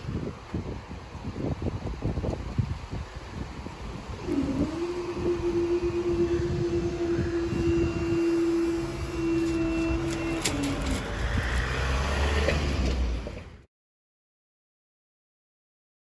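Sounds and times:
low rumble: 0:03.9 - 0:13.6
barrier motor whining: 0:04.2 - 0:13.6.

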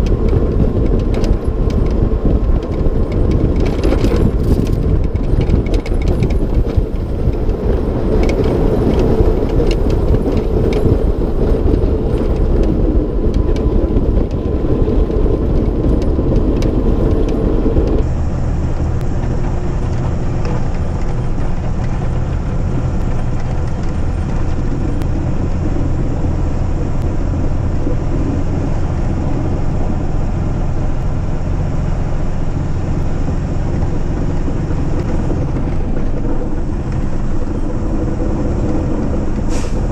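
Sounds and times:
scattered ticks: 0:00.0 - 0:18.0
diesel truck engine drone: 0:00.0 - 0:39.9.

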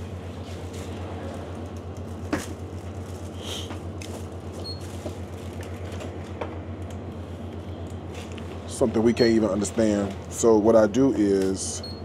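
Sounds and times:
steady low hum: 0:00.0 - 0:12.0
barcode scanner beeps: 0:11.8 - 0:12.0.

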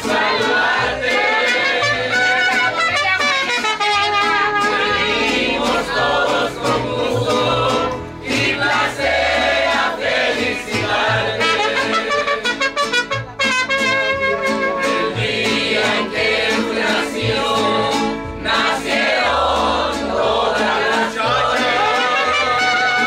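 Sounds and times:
voices singing together: 0:00.0 - 0:03.0, 0:04.1 - 0:12.6, 0:14.6 - 0:23.0
guitars: 0:00.0 - 0:23.0
trumpet: 0:01.1 - 0:05.3, 0:11.3 - 0:15.2, 0:21.6 - 0:23.0.

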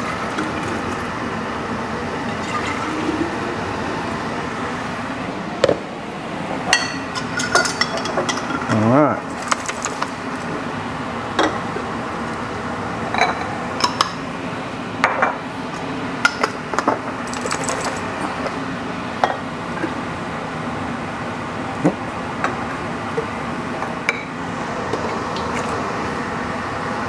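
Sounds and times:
glass bottles and lids clinking: 0:06.8 - 0:08.7, 0:17.2 - 0:18.1.

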